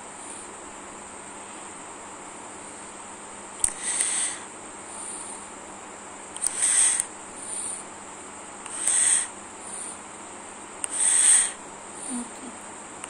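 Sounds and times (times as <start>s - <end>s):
insect chirping: 3.6s - 5.5s, 6.4s - 7.9s, 8.7s - 10.0s, 10.9s - 12.8s.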